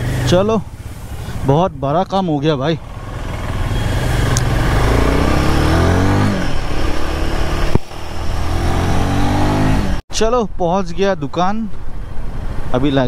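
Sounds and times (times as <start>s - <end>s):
motorcycle engine accelerating: 0.0s - 10.0s.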